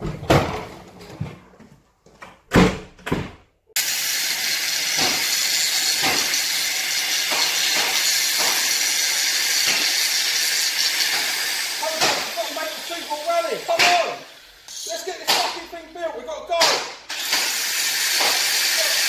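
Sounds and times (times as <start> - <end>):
loud steady hiss: 3.8 - 16.0, 17.0 - 19.0
sharp knocks: 12.0 - 12.3, 15.3 - 15.7, 16.6 - 17.1.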